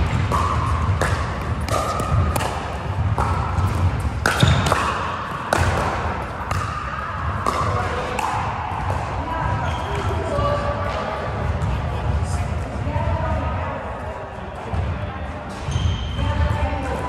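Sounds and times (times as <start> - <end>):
paddles striking plastic ball: 0.0 - 6.8.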